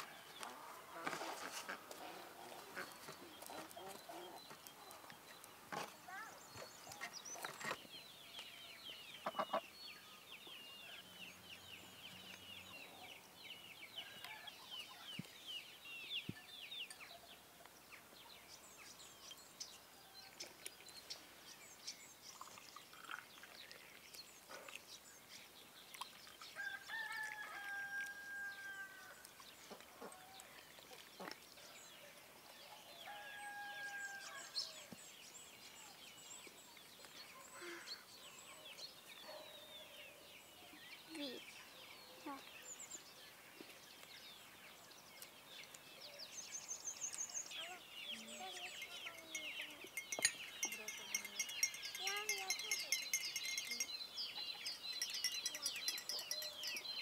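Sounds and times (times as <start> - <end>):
small birds twittering: 1.6 - 57.0
rooster crowing: 33.0 - 34.4.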